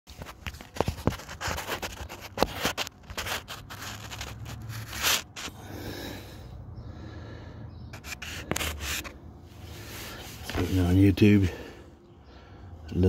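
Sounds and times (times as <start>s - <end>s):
scraping and rustling handling noise: 0.1s - 5.6s, 8.0s - 11.4s.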